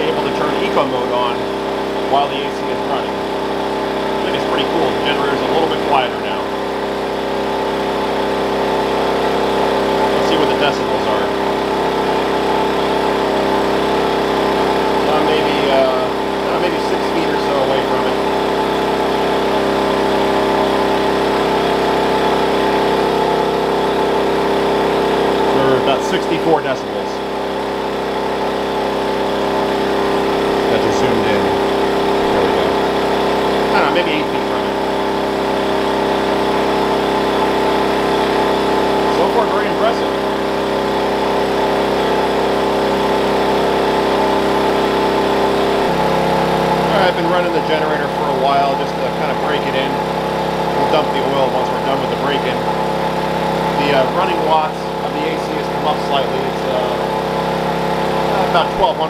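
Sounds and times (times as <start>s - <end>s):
air conditioner compressor and fan: 0.0s - 59.0s
generator running: 0.0s - 59.0s.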